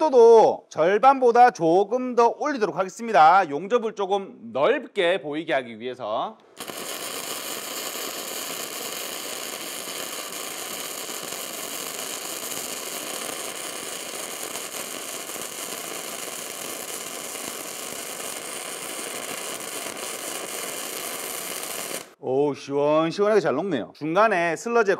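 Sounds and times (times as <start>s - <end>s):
welding arc spraying spatter: 6.6s - 22.2s.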